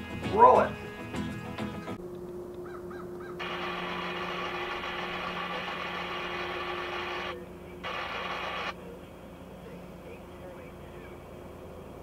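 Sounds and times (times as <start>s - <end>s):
diesel locomotive engine running: 3.4s - 12.0s.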